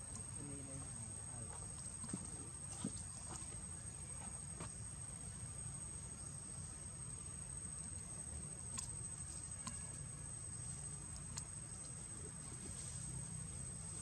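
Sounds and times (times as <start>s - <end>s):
insects trilling: 0.0s - 14.0s
faint ticks: 7.8s - 10.0s, 10.8s - 12.3s.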